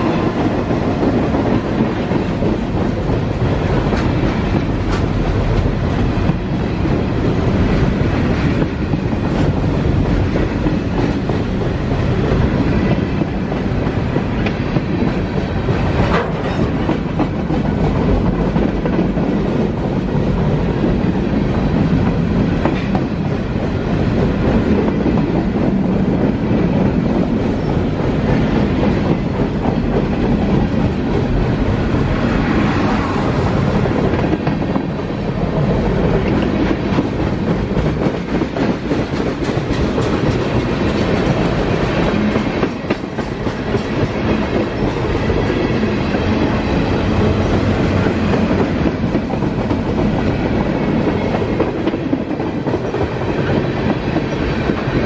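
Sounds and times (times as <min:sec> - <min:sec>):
train wheels rumbling on rails: 0:00.0 - 0:55.0
clicks at rail joints: 0:03.8 - 0:06.4, 0:15.9 - 0:19.2.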